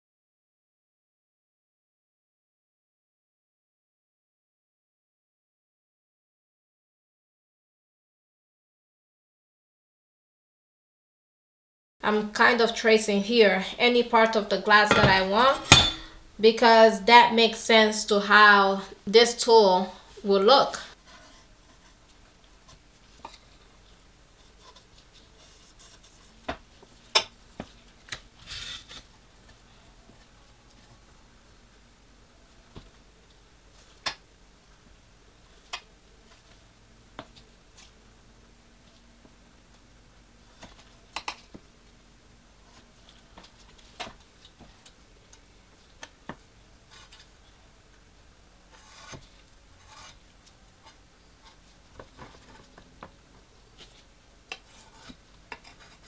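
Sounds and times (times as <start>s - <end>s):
glass scratchy rub: 28.4s - 29.0s.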